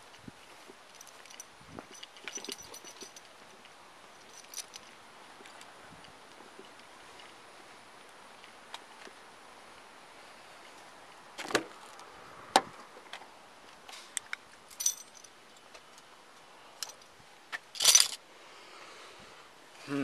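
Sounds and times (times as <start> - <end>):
keys jingling: 0.9 - 3.3, 4.2 - 4.9, 14.7 - 15.3, 17.8 - 18.2.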